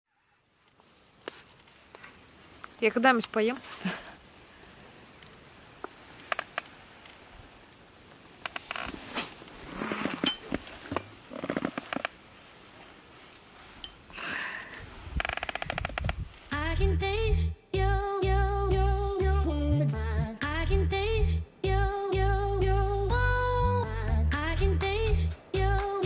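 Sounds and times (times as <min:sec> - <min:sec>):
rustles of handling: 0:00.5 - 0:14.1
sharp clicks: 0:06.2 - 0:06.7, 0:08.4 - 0:08.9, 0:15.2 - 0:16.2
rapid ticks: 0:15.2 - 0:16.2.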